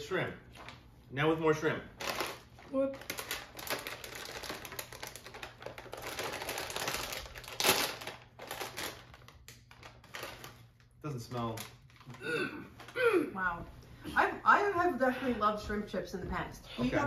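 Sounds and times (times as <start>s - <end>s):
plastic snack bag crackling: 2.0s - 12.2s.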